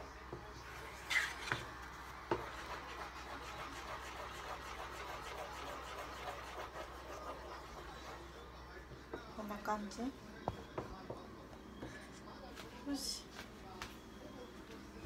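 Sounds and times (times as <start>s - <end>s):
spatula scraping a saucepan: 0.8s - 1.7s, 2.4s - 8.4s.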